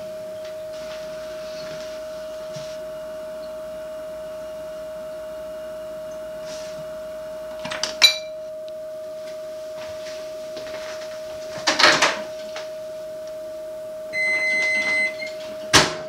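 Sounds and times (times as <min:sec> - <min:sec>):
steady high tone: 0:12.8 - 0:15.4.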